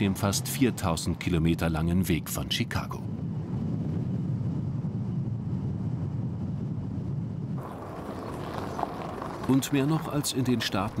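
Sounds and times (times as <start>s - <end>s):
vehicle driving on highway: 3.1s - 11.0s
hissy outdoor ambience: 7.6s - 11.0s.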